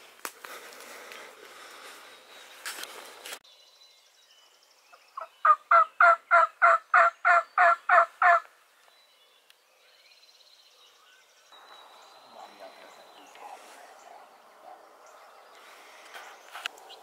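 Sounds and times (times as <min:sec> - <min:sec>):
footsteps through brush: 0:00.0 - 0:03.4, 0:15.5 - 0:17.0
turkey yelps: 0:05.4 - 0:08.4.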